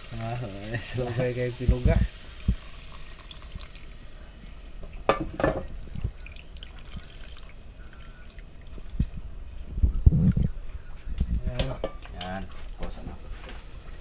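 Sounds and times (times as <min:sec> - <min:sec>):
liquid trickling into metal pot: 0:00.0 - 0:04.0, 0:05.4 - 0:08.9.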